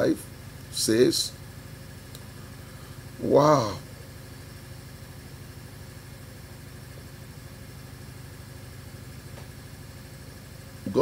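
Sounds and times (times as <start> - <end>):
steady low background hum: 0.0 - 11.0.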